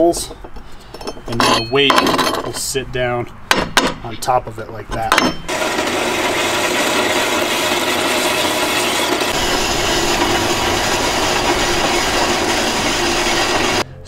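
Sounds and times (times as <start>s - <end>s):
band saw cutting steel: 5.5s - 13.9s.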